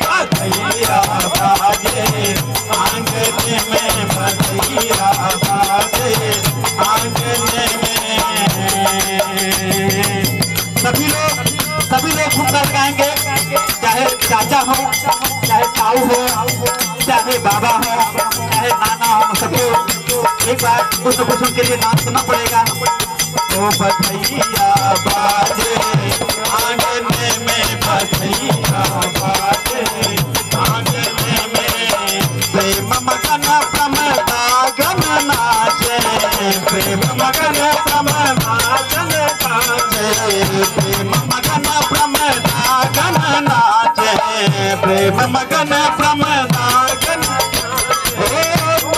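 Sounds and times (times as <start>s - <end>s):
harmonium playing folk tune: 0.0s - 48.9s
rattling hand percussion: 0.0s - 48.9s.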